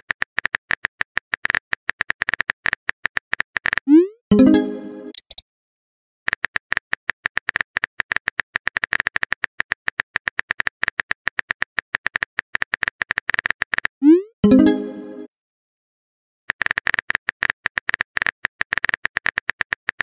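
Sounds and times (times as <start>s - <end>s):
phone keyboard typing clicks: 5.1s - 5.4s.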